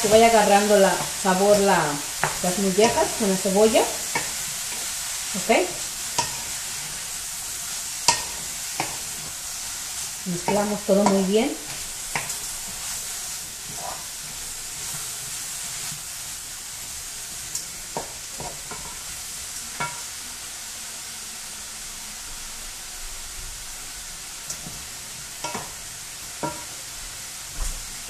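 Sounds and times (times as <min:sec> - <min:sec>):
wooden spoon stirring: 0:00.0 - 0:07.1, 0:08.1 - 0:15.9
food sizzling in a pot: 0:00.0 - 0:28.0.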